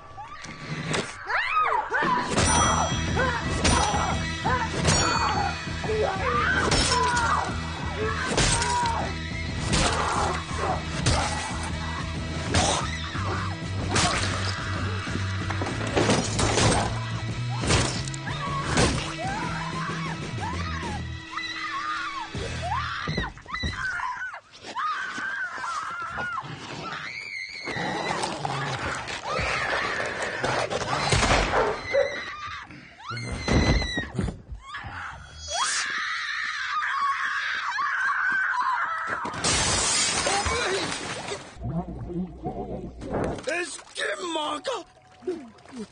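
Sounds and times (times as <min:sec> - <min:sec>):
film music: 0:02.2 - 0:23.5
glass breaking: 0:39.4 - 0:41.4.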